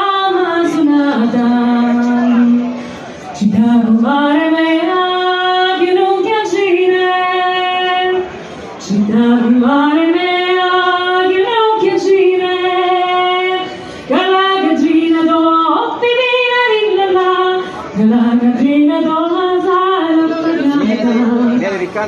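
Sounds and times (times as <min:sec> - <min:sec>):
woman singing slow song: 0:00.0 - 0:02.8, 0:03.4 - 0:21.6
singer breathing: 0:02.7 - 0:03.2, 0:08.3 - 0:08.8, 0:13.7 - 0:14.1.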